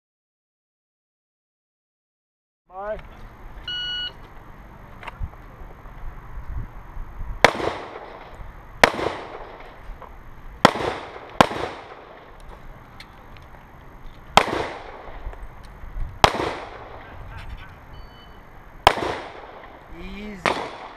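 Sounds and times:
handgun shots with echo: 0:20.4 - 0:20.9.

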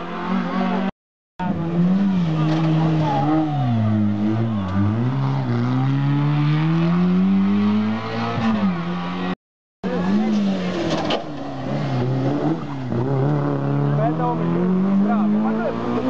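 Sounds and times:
rally car engine accelerating: 0:00.0 - 0:16.0.

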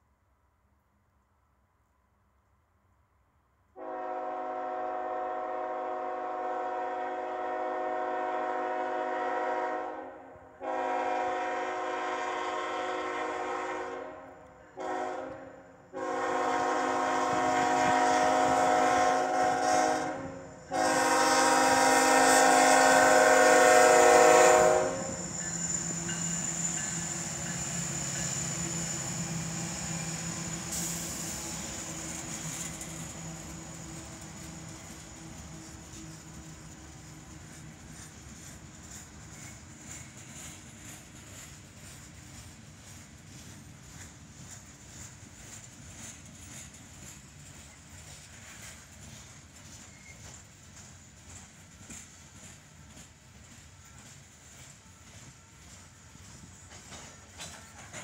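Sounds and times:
locomotive air horn blasts: 0:03.8 - 0:25.2
diesel locomotive engine: 0:03.8 - 0:58.0
steel wheels over crossing: 0:14.5 - 0:58.0.

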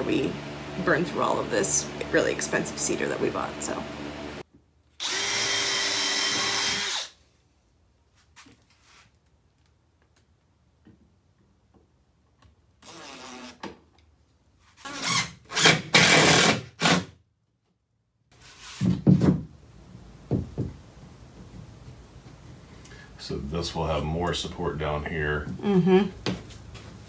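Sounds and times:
cordless drill driving screws: 0:05.0 - 0:07.2, 0:12.8 - 0:13.7, 0:14.8 - 0:17.1.

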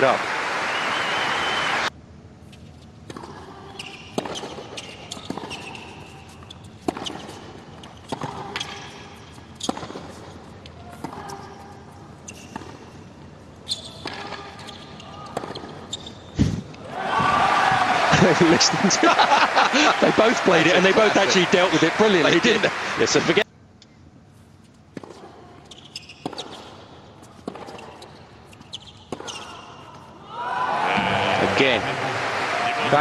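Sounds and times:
racquets hitting tennis ball: 0:02.5 - 0:16.1, 0:24.7 - 0:30.1
tennis ball bouncing on court: 0:03.0 - 0:13.1, 0:13.7 - 0:16.1, 0:24.9 - 0:30.1.

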